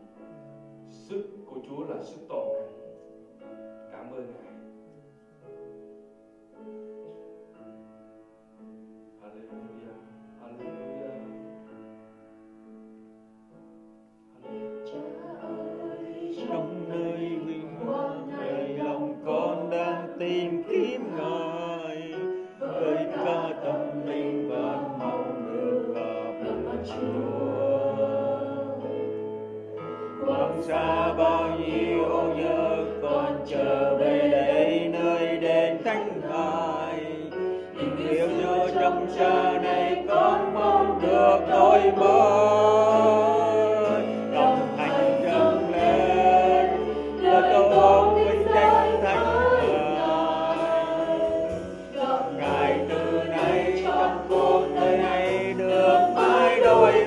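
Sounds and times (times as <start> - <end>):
group singing: 14.4 - 57.0
worship band playing: 14.5 - 57.0.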